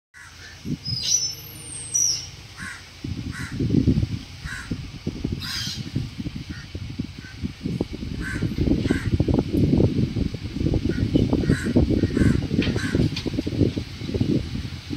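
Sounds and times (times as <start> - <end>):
crows cawing: 0.2 - 0.6, 2.6 - 3.6, 4.4 - 4.8, 5.4 - 5.8, 8.2 - 9.2, 10.9 - 13.0
bird whistle: 0.8 - 2.4.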